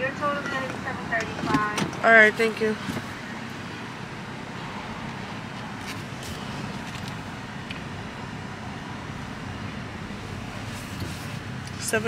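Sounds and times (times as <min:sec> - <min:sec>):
car engine idling: 0:00.0 - 0:12.0.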